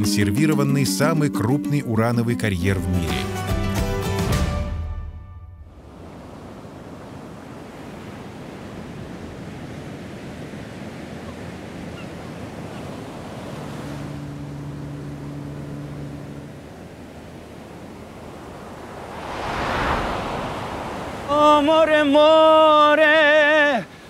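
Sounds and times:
sea waves washing: 0:05.8 - 0:24.0
low steady hum: 0:14.0 - 0:21.6.

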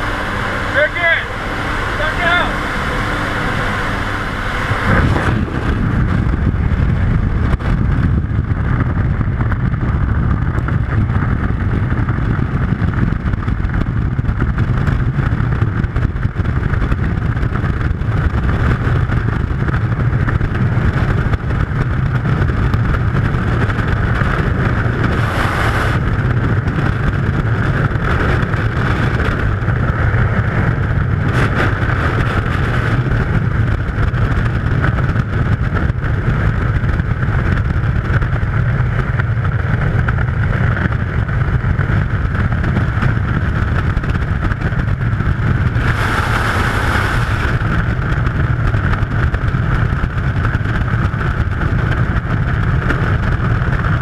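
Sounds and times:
aircraft engine noise: 0:00.0 - 0:54.0
wind rushing over microphone: 0:00.0 - 0:54.0.

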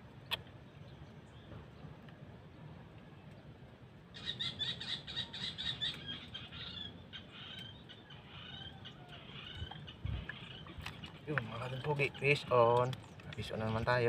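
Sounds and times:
bird chirping: 0:04.2 - 0:14.0.

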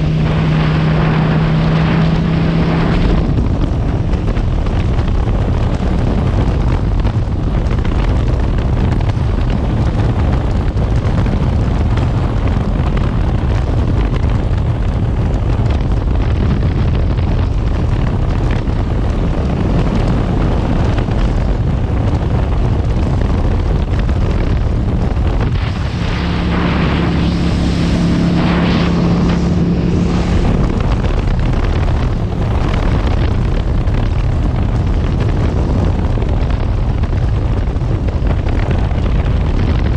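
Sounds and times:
steady droning tone: 0:00.0 - 0:14.1, 0:23.0 - 0:39.0
motorcycle engine running: 0:00.0 - 0:39.9
wind rush on microphone: 0:00.0 - 0:39.9.

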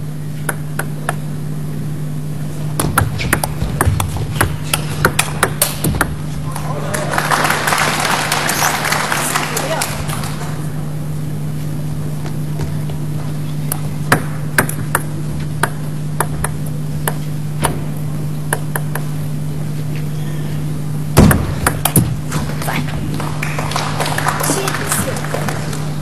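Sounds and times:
low hum: 0:00.0 - 0:26.0
ping pong ball clicking: 0:02.8 - 0:06.2, 0:14.1 - 0:17.2, 0:18.5 - 0:19.1
loud thump: 0:21.2 - 0:22.4.

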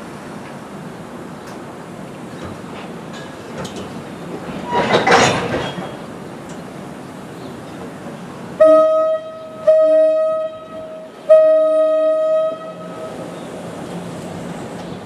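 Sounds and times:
train horn blasts: 0:08.6 - 0:13.2.

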